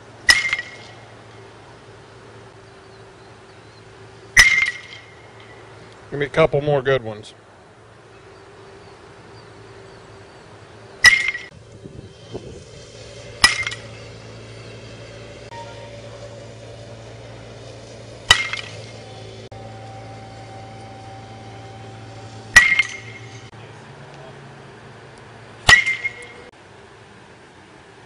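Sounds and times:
steady low hum: 0:00.0 - 0:28.0
metal bat hitting baseball: 0:00.2 - 0:01.0, 0:04.3 - 0:05.6, 0:11.0 - 0:11.6, 0:13.4 - 0:14.2, 0:18.2 - 0:19.1, 0:22.5 - 0:23.5, 0:25.6 - 0:26.5.

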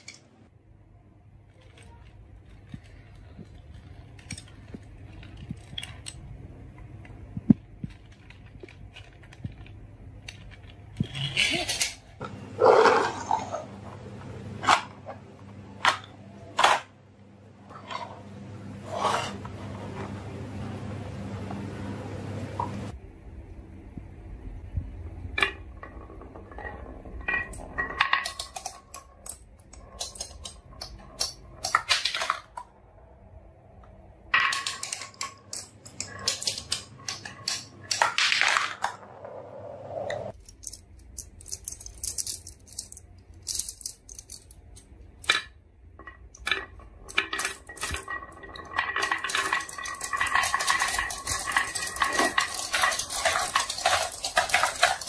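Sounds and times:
marbles dropping into plastic truck: 0:46.1 - 0:55.0
marbles clattering down wooden run: 0:46.6 - 0:55.0.

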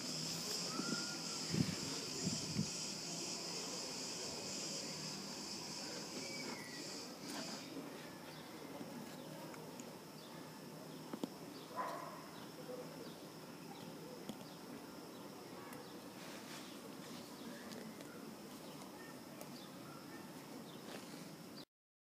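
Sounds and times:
high-pitched insect chirring: 0:00.0 - 0:07.7.

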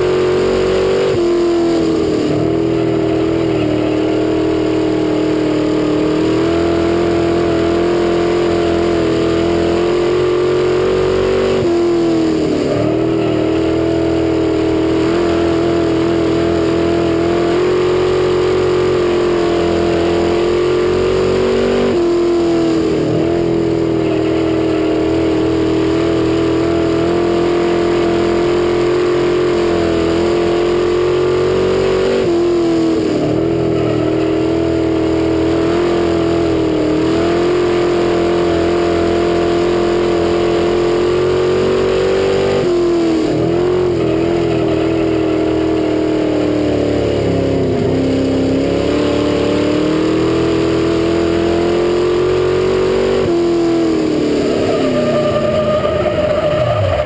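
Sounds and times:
race car engine revving: 0:00.0 - 0:57.0.

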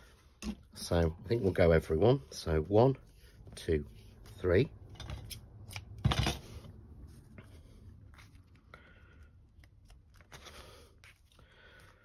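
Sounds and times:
paper envelopes rustling: 0:07.0 - 0:12.0.

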